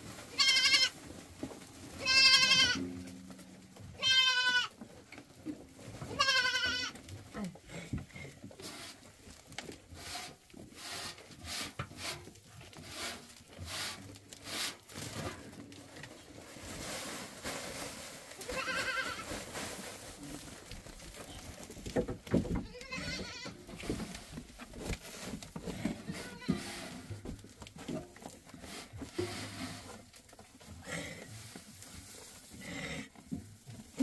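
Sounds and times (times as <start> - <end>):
farm animal bleating: 0.3 - 1.0, 1.9 - 4.8, 6.0 - 7.0, 18.4 - 19.3, 22.6 - 23.7, 25.9 - 27.1
rustling and knocking: 14.9 - 30.8.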